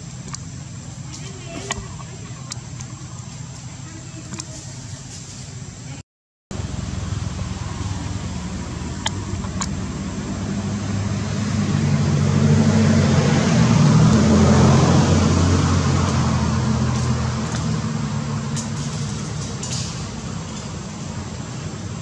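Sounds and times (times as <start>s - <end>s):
vehicle engine passing by: 6.5s - 22.0s.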